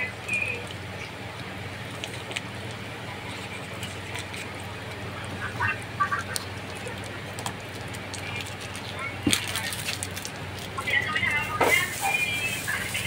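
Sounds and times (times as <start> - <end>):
soup bubbling: 0.0 - 9.3.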